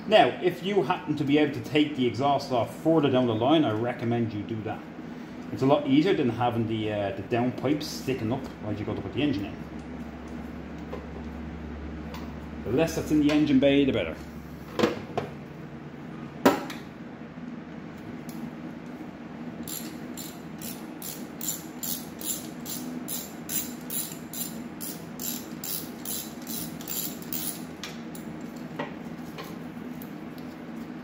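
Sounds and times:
socket ratchet clicking: 0:19.6 - 0:27.7.

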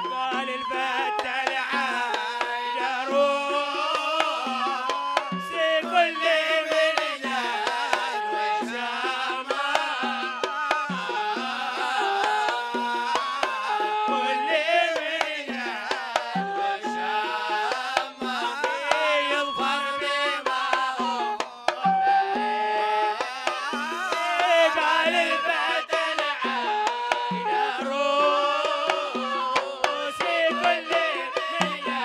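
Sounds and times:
melodic singing: 0:00.0 - 0:22.6
hand drums beating: 0:00.0 - 0:32.0.

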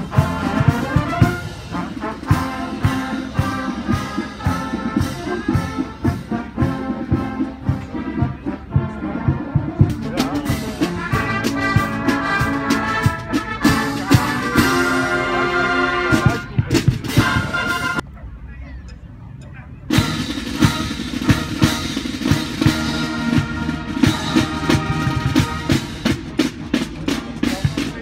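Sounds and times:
brass instruments holding chords: 0:00.0 - 0:18.0, 0:19.9 - 0:27.9
drums beating march rhythm: 0:00.0 - 0:18.0, 0:19.9 - 0:28.0.

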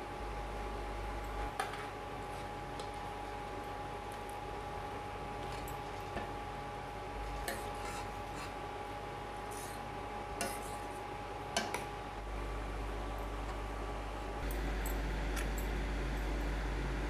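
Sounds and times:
steady hum with high tone: 0:00.0 - 0:17.0.

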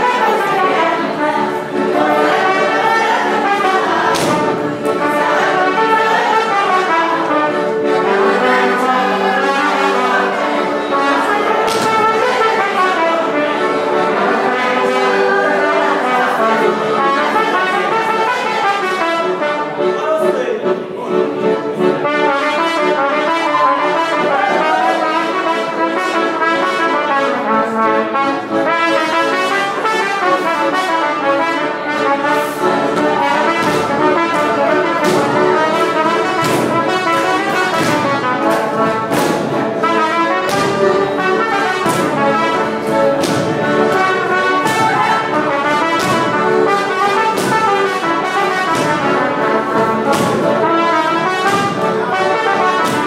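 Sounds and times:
brass band playing dance music: 0:00.0 - 0:53.0
sharp beats: 0:32.4 - 0:53.0.

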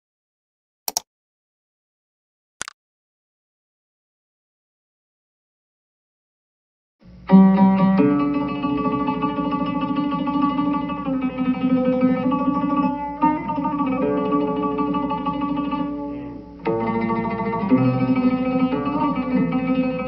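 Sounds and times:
solo oud improvising: 0:07.3 - 0:20.0.

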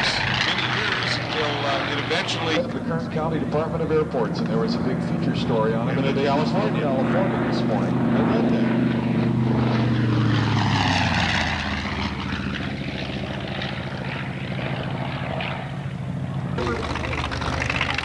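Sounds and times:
propeller plane engine drone: 0:00.0 - 0:18.0.

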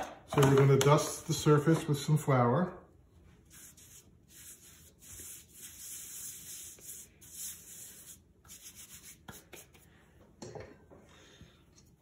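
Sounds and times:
hands swishing flour on mat: 0:03.4 - 0:09.9.

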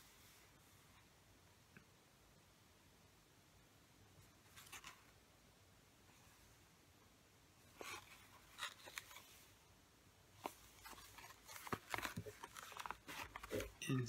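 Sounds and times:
cardboard box rustling: 0:10.4 - 0:13.8.

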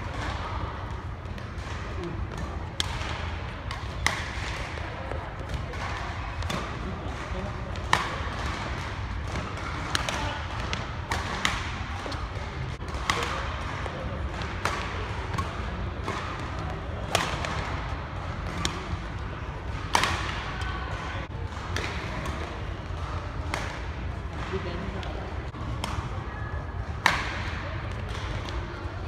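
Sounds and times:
racket striking shuttlecock: 0:02.3 - 0:04.7, 0:19.7 - 0:20.4.

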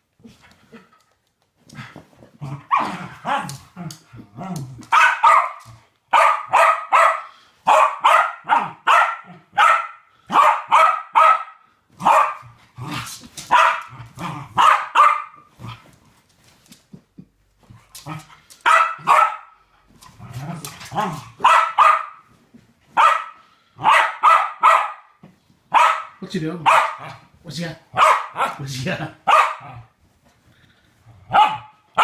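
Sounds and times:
dog barking sharply: 0:04.9 - 0:12.4, 0:13.5 - 0:13.9, 0:14.6 - 0:15.4, 0:18.6 - 0:19.5, 0:21.4 - 0:22.2, 0:23.0 - 0:25.1, 0:25.7 - 0:27.2, 0:28.0 - 0:28.6, 0:29.3 - 0:29.8, 0:31.3 - 0:32.0
dog growling: 0:20.1 - 0:21.4.

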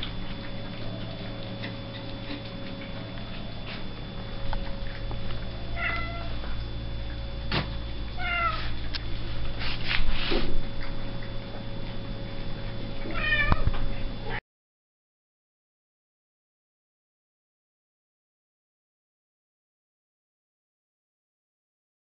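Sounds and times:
steady low hum: 0:00.0 - 0:14.4
cat meowing: 0:05.8 - 0:06.4, 0:08.2 - 0:08.7, 0:13.1 - 0:13.8.

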